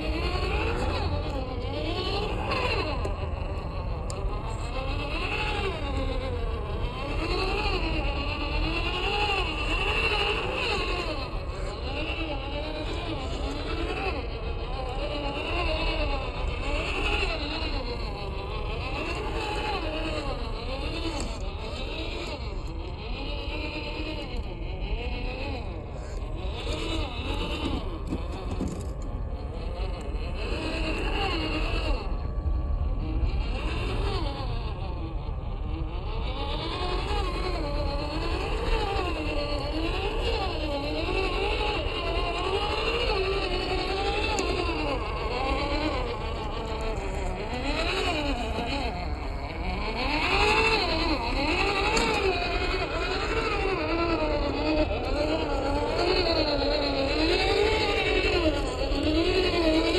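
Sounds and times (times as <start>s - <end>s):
electric motor and gearbox whining: 0.0s - 59.9s.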